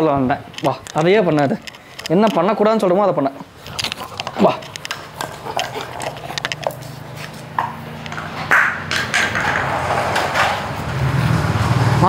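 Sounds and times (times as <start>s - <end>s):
dog gnawing coconut shell: 0.5s - 9.7s
vehicle engine droning: 5.8s - 12.0s.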